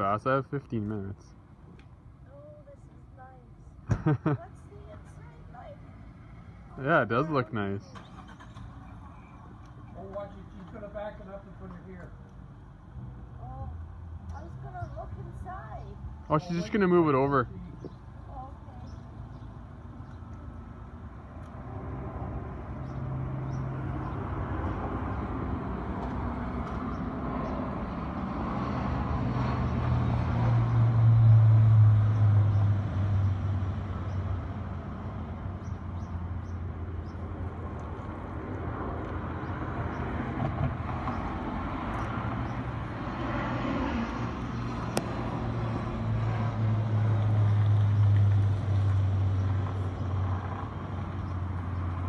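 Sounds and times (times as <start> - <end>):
car engine humming: 2.3 - 28.4.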